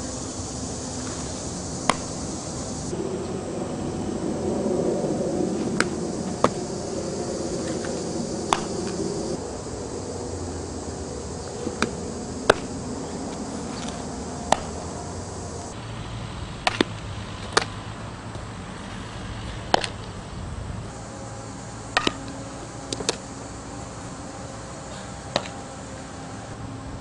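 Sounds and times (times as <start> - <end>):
outdoor hiss: 0.0 - 27.0
softball smacking into leather glove: 1.9 - 2.2, 8.5 - 8.8.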